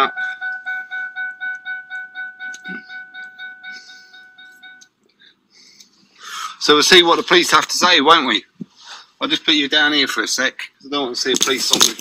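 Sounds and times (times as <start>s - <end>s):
car warning chime beeping: 0.0s - 5.0s.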